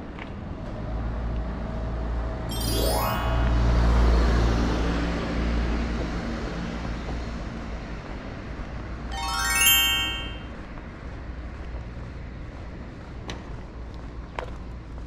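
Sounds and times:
rising chime glissando: 0:02.5 - 0:04.2, 0:09.1 - 0:10.5.

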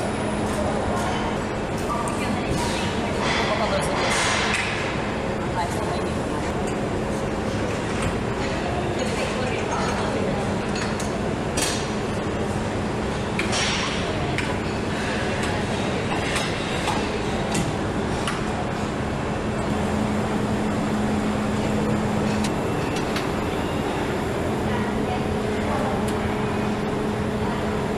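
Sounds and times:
machinery humming: 0:09.6 - 0:27.9.

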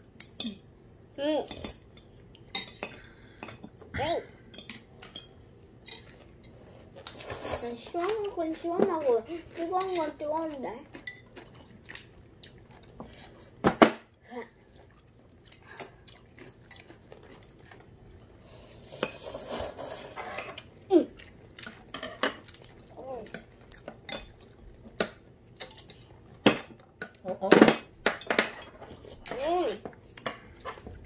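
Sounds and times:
chopsticks clinking on bowls: 0:08.8 - 0:11.6.

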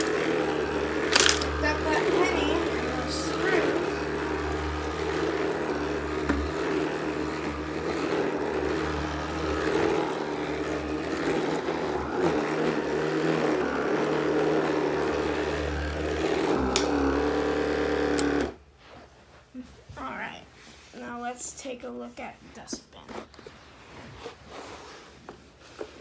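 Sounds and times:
sweeper motor and brush running: 0:00.0 - 0:18.6.

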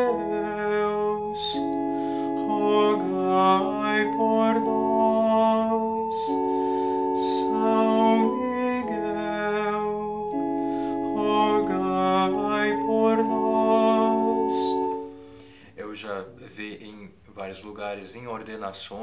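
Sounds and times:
man singing: 0:00.0 - 0:10.4, 0:11.0 - 0:15.0
electronic keyboard chords: 0:00.0 - 0:15.6.

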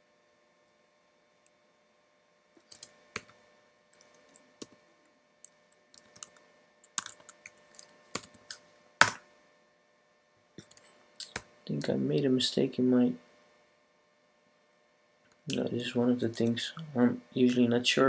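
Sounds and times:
keyboard typing: 0:02.6 - 0:04.8, 0:05.4 - 0:09.2.

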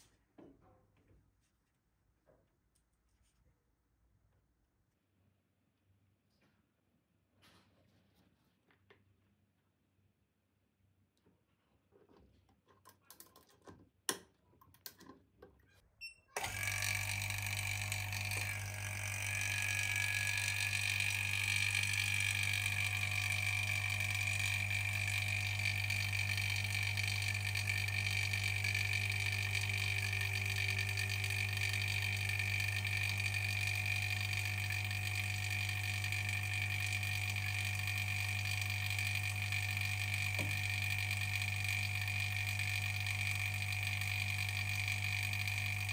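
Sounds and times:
laminating machine humming: 0:16.4 - 0:45.9.

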